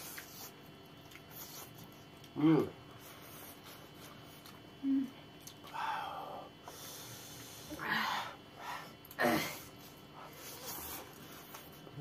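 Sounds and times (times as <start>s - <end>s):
sniffling hissing breaths: 2.9s - 4.5s, 5.7s - 11.8s.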